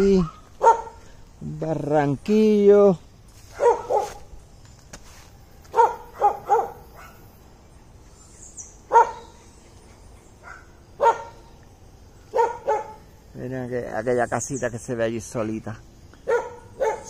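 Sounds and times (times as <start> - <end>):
dog barking: 0.2 - 1.0, 3.5 - 4.2, 5.7 - 7.3, 8.9 - 9.4, 10.4 - 11.4, 12.3 - 13.0, 16.2 - 17.0.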